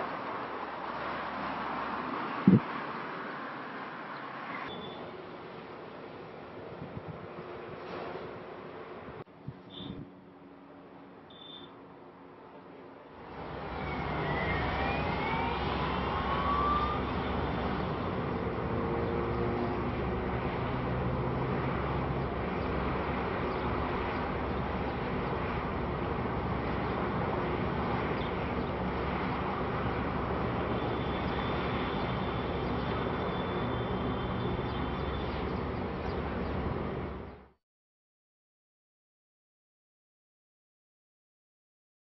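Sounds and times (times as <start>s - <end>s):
traffic and engine noise: 0.0s - 37.6s
vehicle whine: 0.0s - 37.6s.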